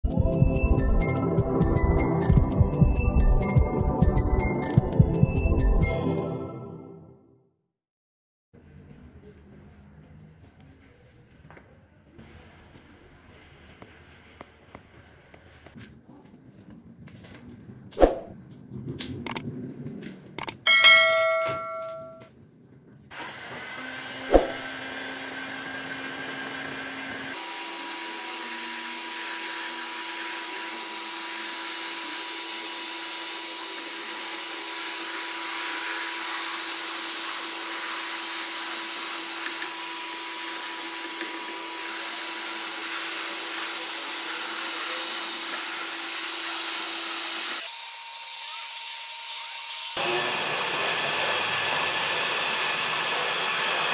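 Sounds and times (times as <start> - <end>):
short chime with clicks: 20.4 - 22.3
heat gun blowing: 23.1 - 24.8, 27.0 - 28.0, 32.7 - 47.8, 48.7 - 53.9.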